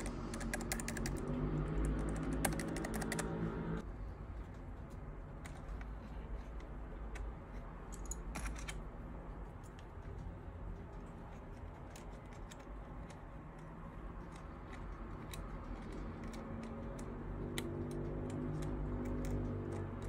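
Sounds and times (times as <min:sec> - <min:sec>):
mechanical keyboard clicks: 0:00.0 - 0:03.5.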